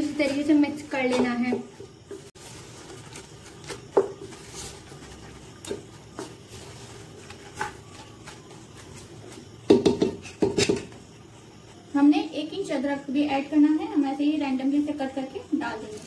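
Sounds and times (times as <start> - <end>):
spatula knocking against pot: 9.7 - 11.0.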